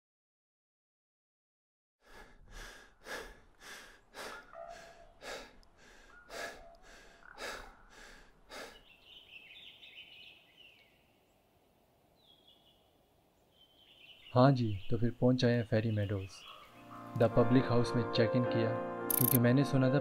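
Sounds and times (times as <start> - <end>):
bird chirping: 4.3 - 17.0, 19.1 - 19.4.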